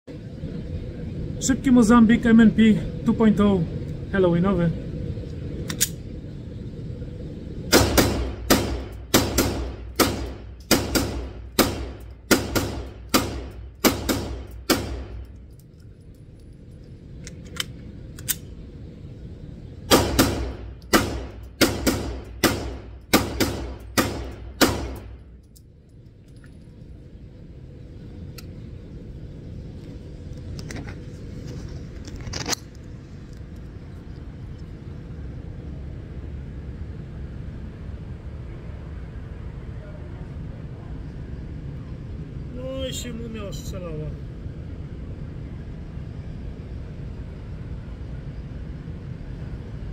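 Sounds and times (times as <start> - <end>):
steady low hum: 0.0 - 49.9.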